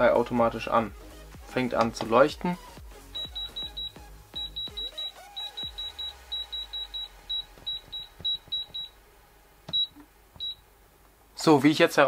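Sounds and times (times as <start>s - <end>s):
keypad beeps: 3.2s - 8.9s, 9.7s - 10.6s.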